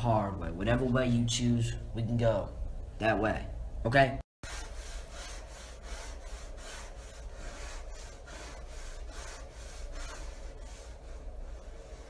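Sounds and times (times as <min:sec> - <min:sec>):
hand scraping chalkboard: 0:04.4 - 0:12.0.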